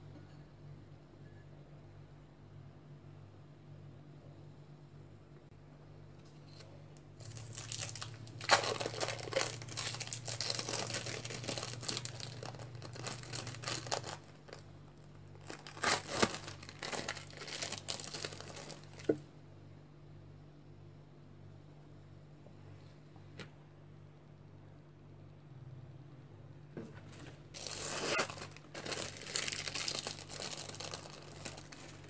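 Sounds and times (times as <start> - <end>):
plastic wrapper crinkling: 6.5 - 19.2, 27.5 - 32.0.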